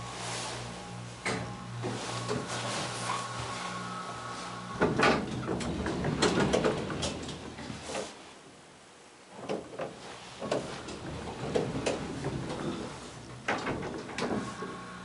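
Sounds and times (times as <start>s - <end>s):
elevator doors rattling open: 1.3s - 7.8s, 10.5s - 15.0s
elevator door clunk: 4.6s - 7.7s, 10.5s - 15.0s.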